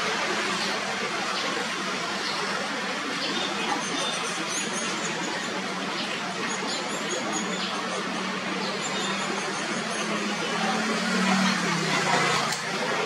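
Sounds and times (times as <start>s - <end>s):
distant road traffic: 4.2s - 13.0s.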